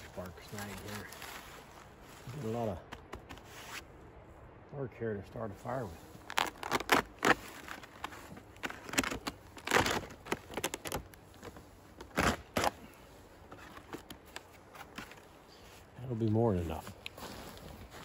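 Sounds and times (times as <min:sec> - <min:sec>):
bark cracking and ripping: 0:06.3 - 0:11.3, 0:12.0 - 0:12.8.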